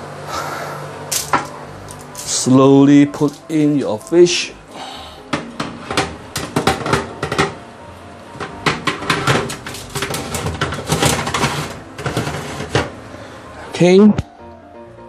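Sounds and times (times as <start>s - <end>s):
metal tray scraping oven rack: 8.4s - 13.0s.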